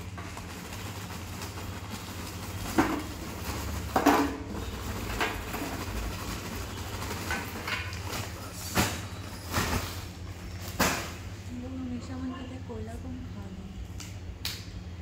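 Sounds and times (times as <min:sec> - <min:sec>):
charcoal clattering into metal box: 0:00.0 - 0:11.2
plastic sack rustling: 0:00.0 - 0:11.2.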